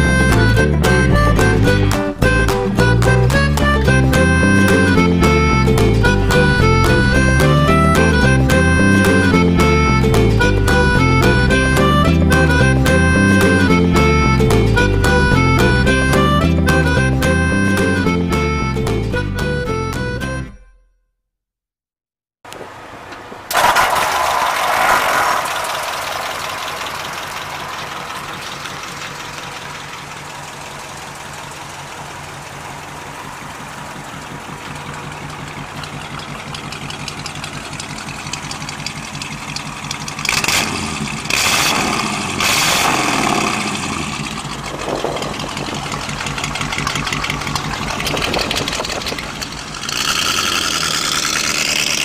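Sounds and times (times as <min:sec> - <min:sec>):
car engine starting and idling: 0:00.0 - 0:20.4, 0:22.5 - 0:52.0.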